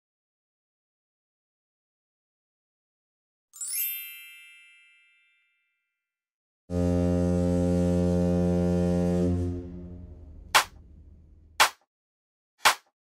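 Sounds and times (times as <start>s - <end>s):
low ship's horn blast: 6.7s - 11.6s.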